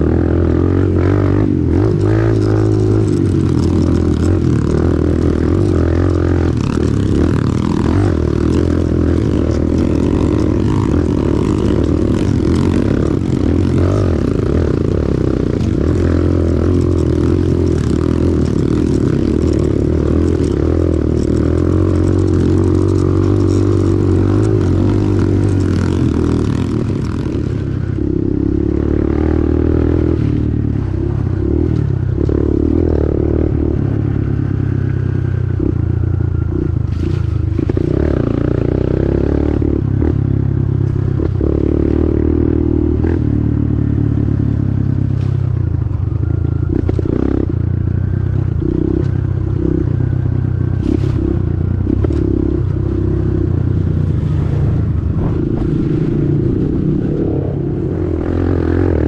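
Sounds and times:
pit bike engine running: 0.0s - 59.0s
wind rushing over microphone: 53.4s - 59.0s.

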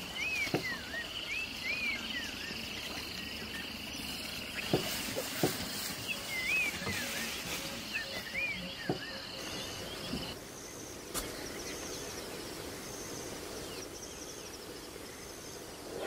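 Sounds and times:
whistled bird calls: 0.1s - 3.7s, 6.0s - 10.4s.

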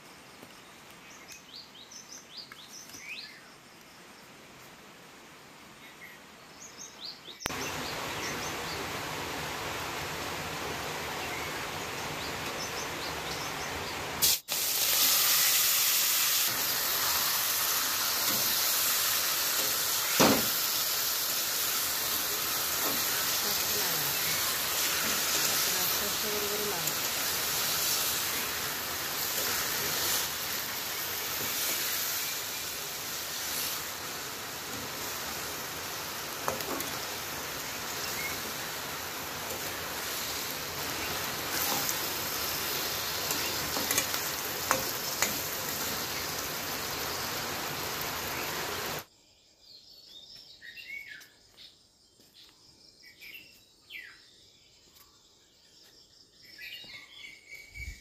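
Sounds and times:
food sizzling in a wok: 7.5s - 49.1s.

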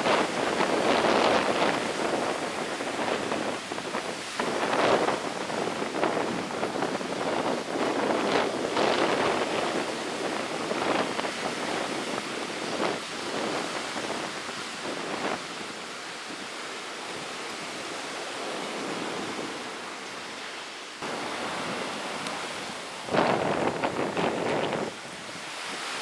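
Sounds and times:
surf on the shore: 0.0s - 26.0s
wind rushing: 21.0s - 26.0s.

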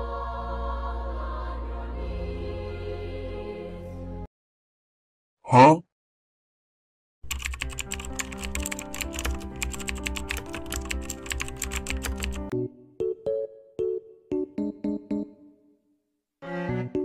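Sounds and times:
fast keyboard typing: 7.2s - 12.5s
separate keyboard notes: 7.3s - 15.6s.

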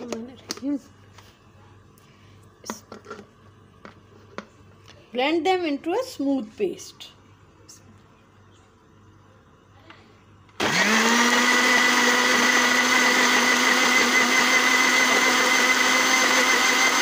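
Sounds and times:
electric blender motor whining: 10.6s - 17.0s.

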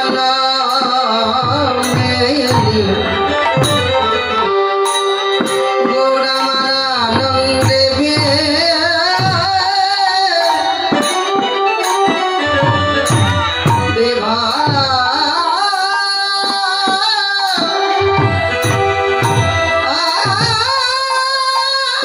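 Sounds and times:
harmonium tones: 0.0s - 22.0s
person singing devotional melody: 0.0s - 22.0s
hand drum beat: 0.8s - 9.9s, 10.5s - 15.0s, 18.3s - 20.8s.

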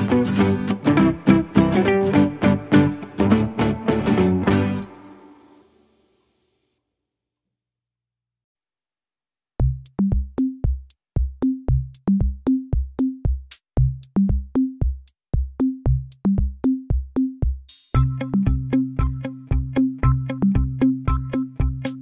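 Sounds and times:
drum-machine beat: 9.6s - 22.0s
low bass notes: 18.0s - 21.9s.

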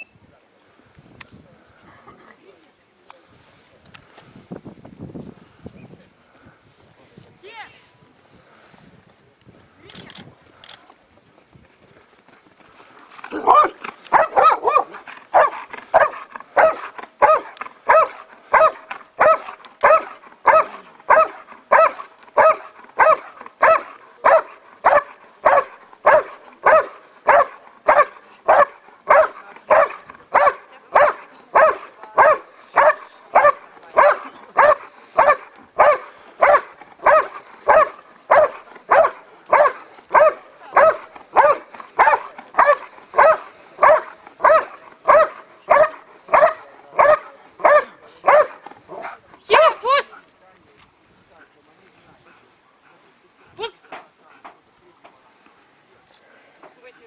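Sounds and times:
dog barking: 13.4s - 49.8s.

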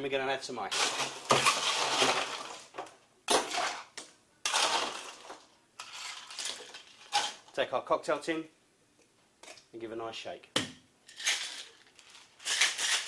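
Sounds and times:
ice cubes clattering into glass: 0.7s - 2.6s.

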